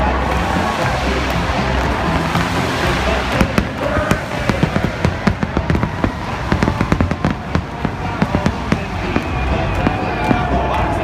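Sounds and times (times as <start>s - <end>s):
fireworks bangs and crackles: 0.1s - 11.0s.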